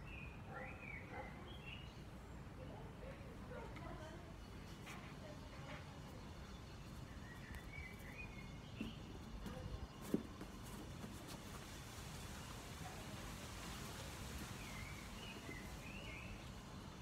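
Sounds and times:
bird chirping: 6.6 - 9.2, 14.6 - 16.5
shuffling footsteps: 7.5 - 15.8.

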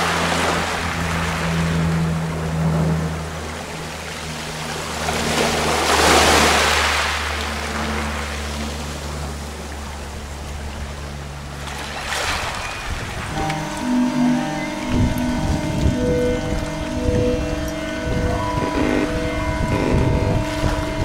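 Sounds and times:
low electronic drone tones: 0.0 - 6.6, 12.3 - 21.0.

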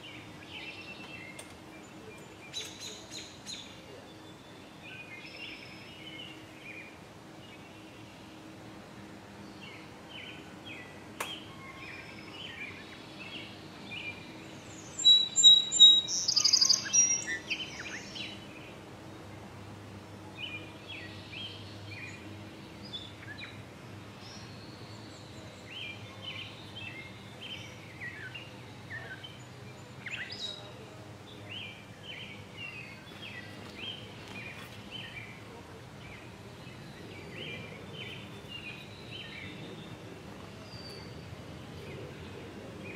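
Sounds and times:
songbirds chirping: 0.0 - 42.9
close high bird calls: 14.9 - 18.3.

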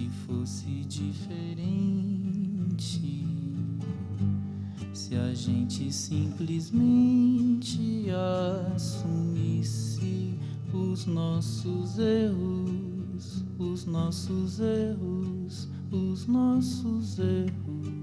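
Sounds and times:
man singing: 0.0 - 3.8, 5.0 - 18.0
acoustic guitar: 0.0 - 18.0.

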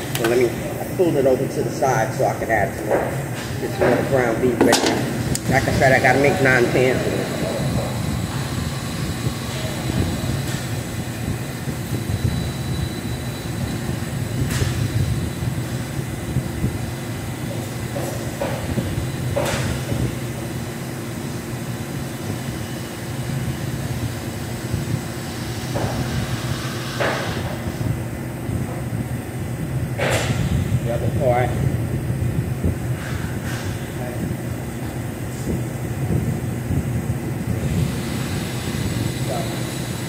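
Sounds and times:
exhaust fan low rumble: 0.0 - 40.0
utensils knocking against metal: 3.8 - 5.4.

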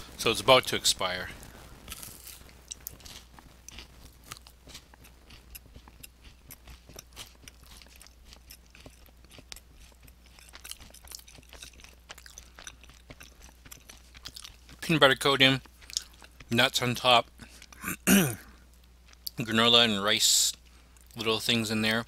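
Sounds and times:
person chewing granola bar: 1.4 - 19.4.

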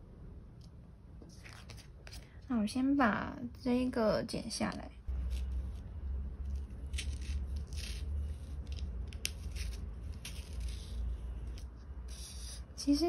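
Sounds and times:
scissors snipping paper: 6.4 - 12.6.

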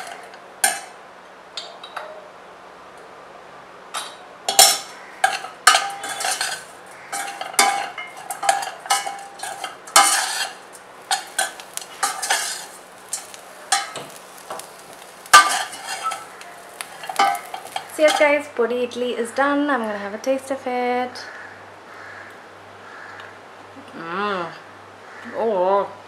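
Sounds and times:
steel spoon scraping a steel pot: 4.5 - 14.0, 15.4 - 18.4.

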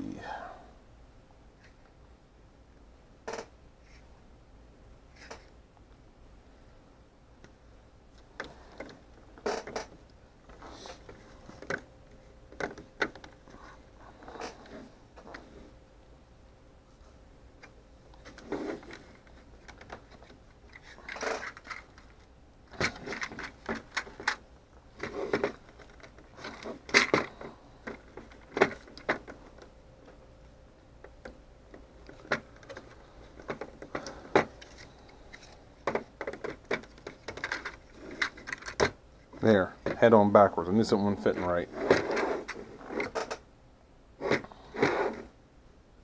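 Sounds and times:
plastic parts clicking and scraping: 5.1 - 5.5, 8.2 - 11.9, 12.5 - 15.5, 17.6 - 29.7, 31.0 - 40.0, 41.3 - 43.4.

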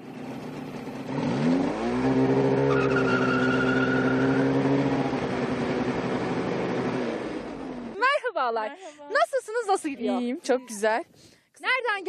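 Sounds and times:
snowmobile engine: 0.0 - 8.2.

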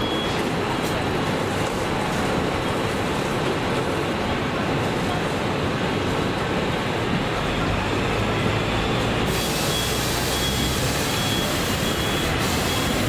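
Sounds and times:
street traffic: 0.0 - 13.0
tram rumbling: 0.0 - 13.0.

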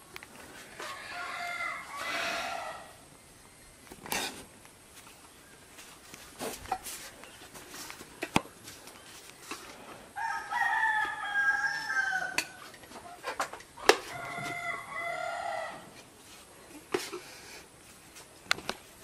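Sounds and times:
rooster crowing: 0.8 - 3.0, 10.2 - 12.7, 14.0 - 16.0.

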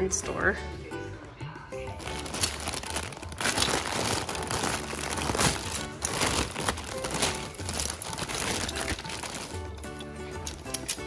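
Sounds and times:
background music: 0.0 - 11.0
plastic bag crinkling: 2.0 - 9.8.

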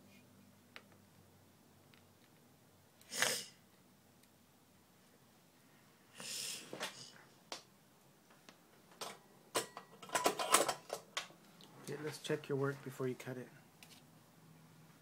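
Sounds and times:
tools clicking and knocking: 9.0 - 11.3.

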